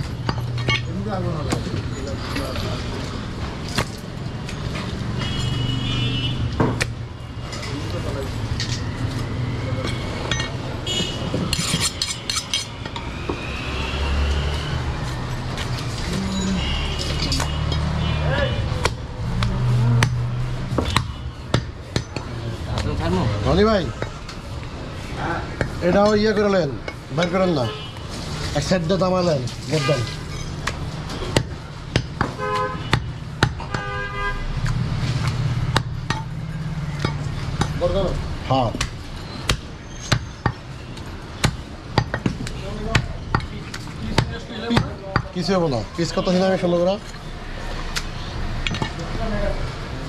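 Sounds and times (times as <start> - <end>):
vehicle horn: 5.2 - 6.5, 10.8 - 11.3, 16.1 - 18.7, 32.4 - 33.1, 33.7 - 34.5
cleaver chopping meat on wood: 31.3 - 33.9, 38.8 - 40.6, 41.3 - 45.3.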